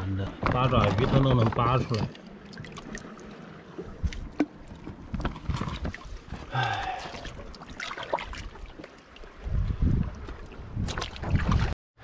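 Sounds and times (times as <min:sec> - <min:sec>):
footsteps splashing through water: 0:06.8 - 0:09.0, 0:10.2 - 0:11.8.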